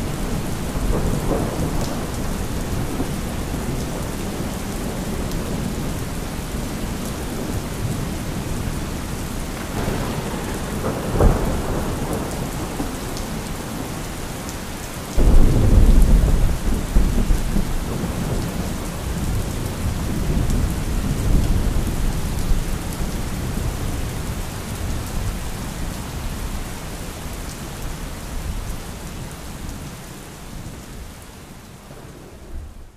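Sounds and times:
steady rain: 0:00.0 - 0:32.9
rumbling thunderclap: 0:00.1 - 0:05.9, 0:09.6 - 0:13.9, 0:15.2 - 0:24.0
sharp thunder crack: 0:09.6 - 0:13.0, 0:15.2 - 0:18.6.

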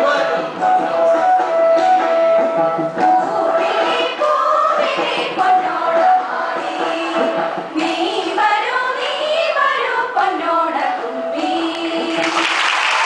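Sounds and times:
group singing in unison: 0:03.0 - 0:12.5.

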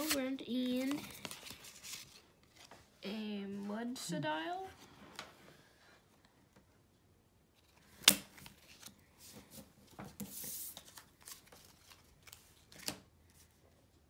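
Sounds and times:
trading cards rustling: 0:00.0 - 0:02.7, 0:10.2 - 0:13.0.

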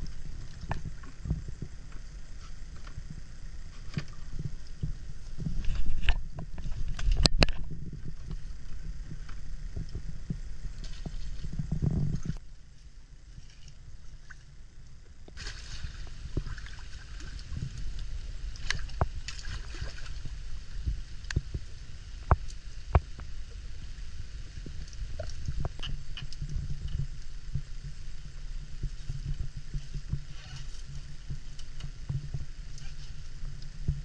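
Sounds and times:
water sloshing and splashing: 0:15.3 - 0:21.5.

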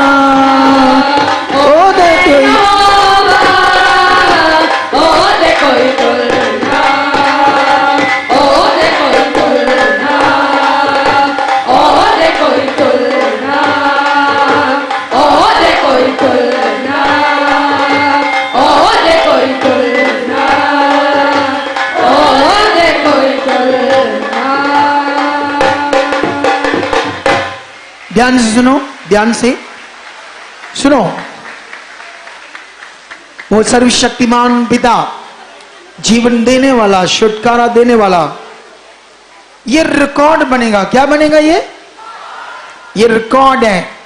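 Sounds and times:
women singing worship song: 0:00.0 - 0:27.3
drum beat: 0:00.0 - 0:34.0
hand clapping: 0:29.7 - 0:33.9.

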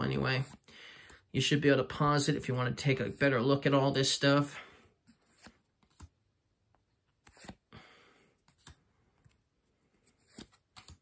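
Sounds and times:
card sliding rustle: 0:05.0 - 0:06.1, 0:07.1 - 0:07.7, 0:08.4 - 0:11.0.

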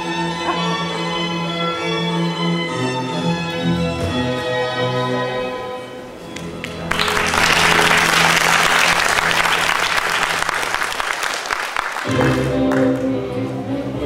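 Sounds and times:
audience applauding: 0:06.4 - 0:13.1.

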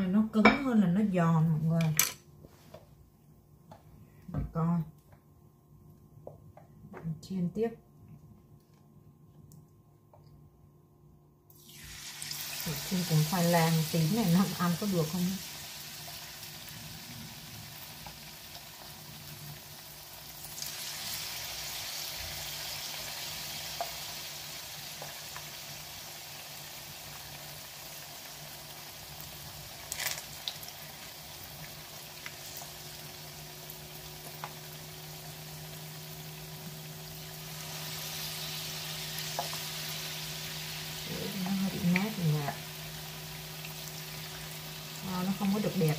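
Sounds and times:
fritters sizzling in hot oil: 0:11.5 - 0:45.9.

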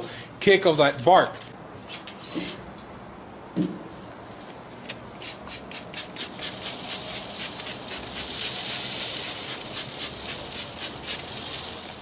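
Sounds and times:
spray bottle squirts: 0:05.2 - 0:12.0.

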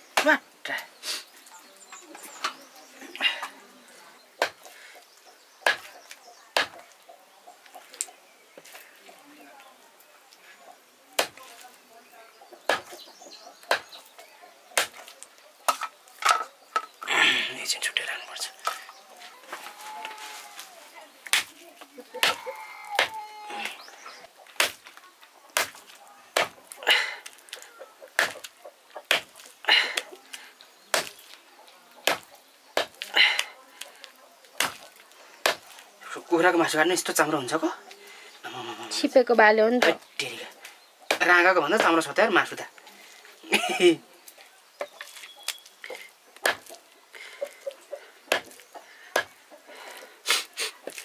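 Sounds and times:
knife chopping meat and bone: 0:05.6 - 0:06.0, 0:06.6 - 0:06.8, 0:11.2 - 0:11.4, 0:14.8 - 0:15.1, 0:22.2 - 0:23.2, 0:25.6 - 0:25.8, 0:28.2 - 0:28.4, 0:29.0 - 0:29.4, 0:30.9 - 0:31.2, 0:32.0 - 0:33.0, 0:34.6 - 0:35.8, 0:46.4 - 0:46.7, 0:48.3 - 0:49.3.

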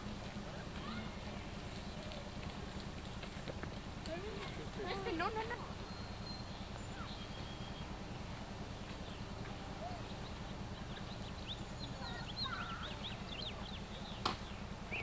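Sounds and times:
faint high chirps: 0:05.8 - 0:08.0.

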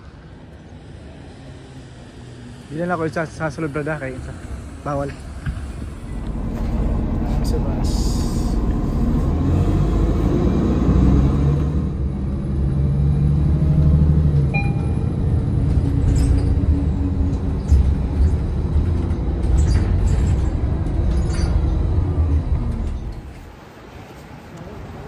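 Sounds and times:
bus engine and road rumble: 0:00.0 - 0:25.0
high beep: 0:14.5 - 0:15.2.

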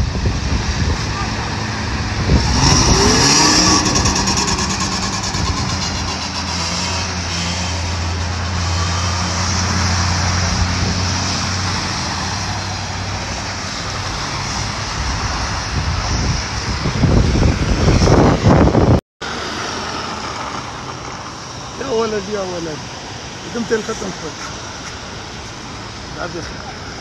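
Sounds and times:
vehicle engines humming: 0:00.0 - 0:27.0
tyres hissing through slush: 0:19.3 - 0:27.0.

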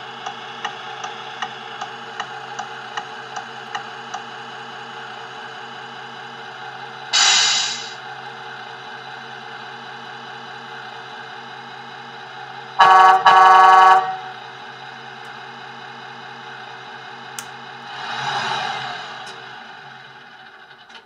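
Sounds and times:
truck air horn blasts: 0:12.8 - 0:14.4.

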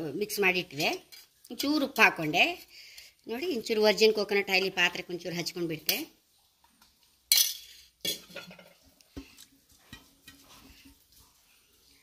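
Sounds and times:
spoon and bowls clinking: 0:07.3 - 0:08.9.

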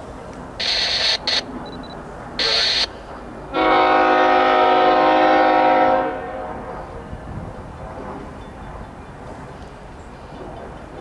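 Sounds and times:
distant diesel locomotive rumble: 0:00.0 - 0:11.0
wind on microphone: 0:05.4 - 0:11.0.

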